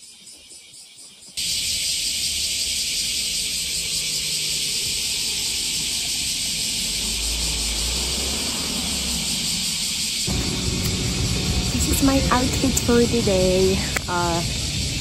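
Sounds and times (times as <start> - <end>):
low hum: 3.4 - 15.0.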